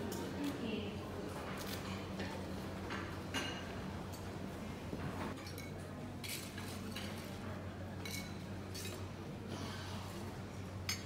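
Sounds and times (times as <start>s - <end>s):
dishes and cutlery clinking: 1.4s - 4.3s, 5.3s - 7.4s, 8.0s - 9.1s.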